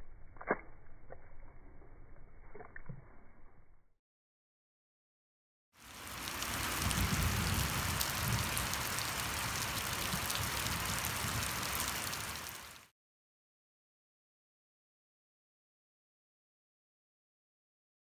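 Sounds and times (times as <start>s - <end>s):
rain falling on grass and puddles: 5.8s - 12.9s.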